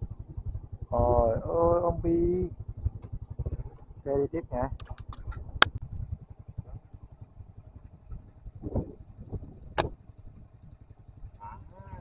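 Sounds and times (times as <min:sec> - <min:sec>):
low rumbling noise: 0:00.0 - 0:12.0
sharp click: 0:09.8 - 0:10.0
short sharp snap: 0:09.8 - 0:10.0.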